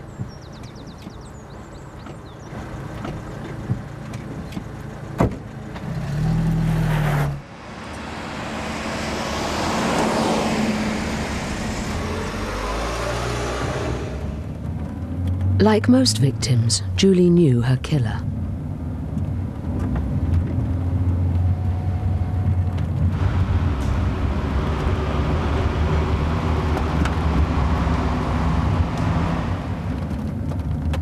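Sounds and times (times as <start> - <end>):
birds chirping: 0.0 - 5.2
car engine humming: 0.0 - 31.0
road noise: 0.0 - 31.0
loud engine note: 23.1 - 29.9.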